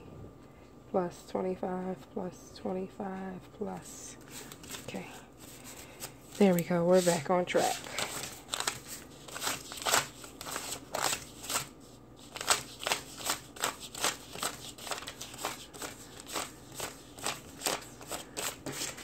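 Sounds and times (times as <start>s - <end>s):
paper bills rustling: 4.2s - 19.0s.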